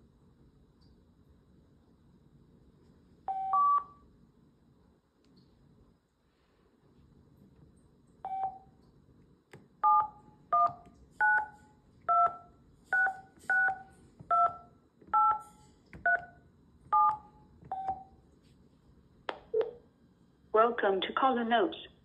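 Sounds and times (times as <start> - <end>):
keypad tone beeps: 3.3 - 4.0, 8.3 - 8.7, 9.8 - 15.4, 16.0 - 18.2.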